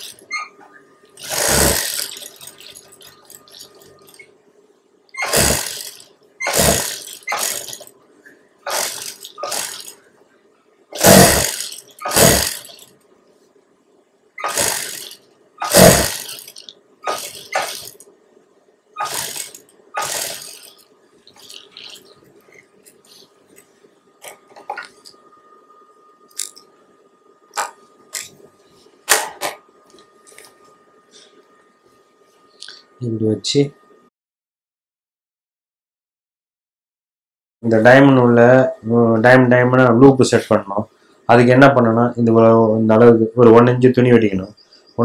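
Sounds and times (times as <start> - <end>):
sewing machine motor humming: 0.0 - 0.4, 1.1 - 4.2, 5.1 - 7.9, 8.6 - 10.1, 10.9 - 13.0, 14.4 - 18.0, 19.0 - 22.2
sewing machine stitching: 0.0 - 0.5, 1.2 - 4.2, 5.1 - 7.9, 8.6 - 10.0, 10.9 - 12.9, 14.4 - 18.0, 19.0 - 22.1.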